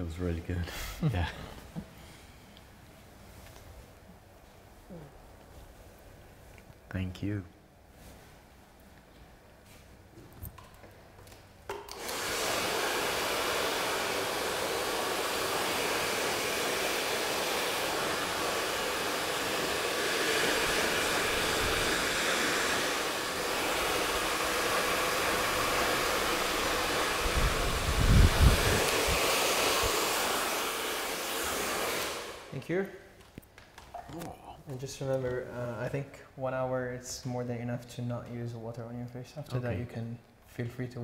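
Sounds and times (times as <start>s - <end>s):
hair dryer blowing: 11.7s - 32.6s.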